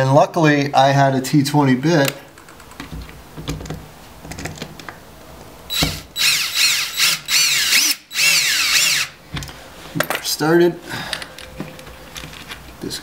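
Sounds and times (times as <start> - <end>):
cordless drill motor whine: 5.7 - 9.2.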